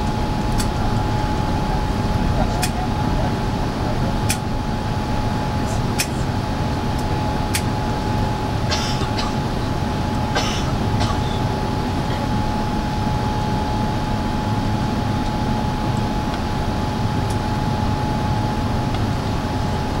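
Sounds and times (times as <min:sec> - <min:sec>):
jet engine roar in cabin: 0:00.0 - 0:20.0
thin steady whine: 0:00.0 - 0:20.0.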